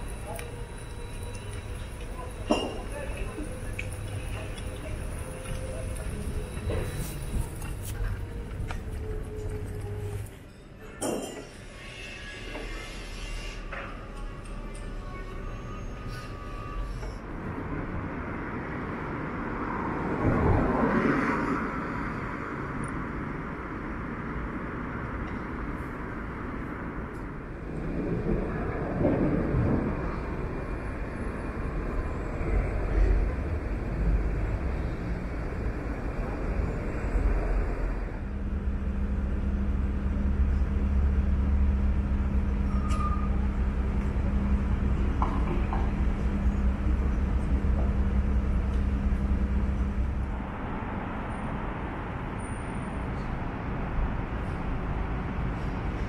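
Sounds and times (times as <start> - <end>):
large diesel engine droning: 0.0 - 11.0, 11.6 - 18.0, 29.3 - 56.0
city street traffic: 0.0 - 56.0.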